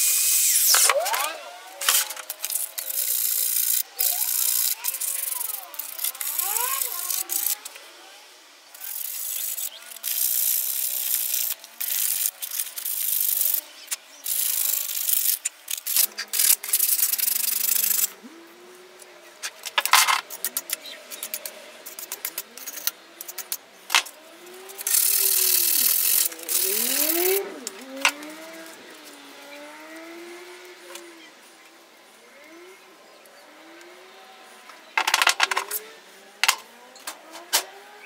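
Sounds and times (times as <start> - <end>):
wire brush scrubbing metal: 0.0 - 7.6, 8.8 - 13.6, 24.7 - 27.6
sandpaper scrubbing metal: 1.8 - 7.6, 24.8 - 27.4.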